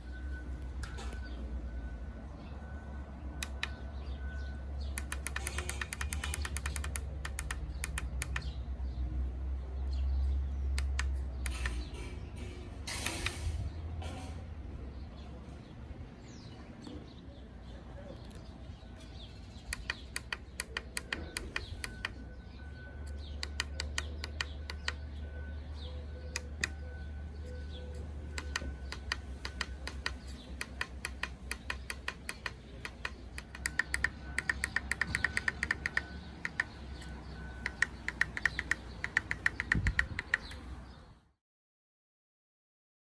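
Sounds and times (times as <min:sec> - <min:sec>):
push button clicks: 0:04.9 - 0:08.5.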